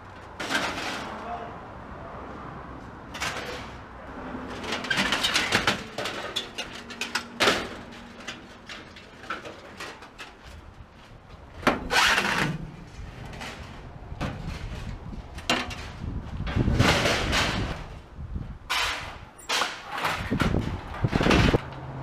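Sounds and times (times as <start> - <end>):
hard objects knocking and clattering: 4.5 - 10.6.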